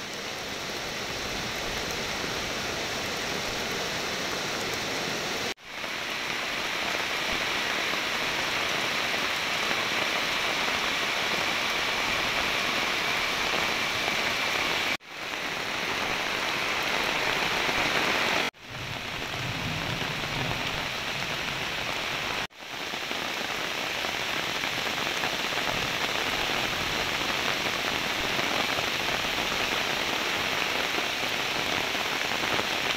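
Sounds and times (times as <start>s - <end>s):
heavy rain on puddles: 0.0s - 32.9s.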